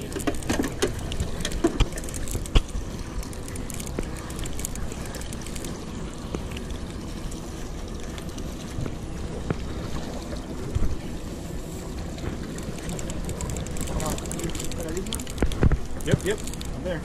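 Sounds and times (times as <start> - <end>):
boat engine low rumble: 0.0 - 17.0
water washing against hull: 0.0 - 17.0.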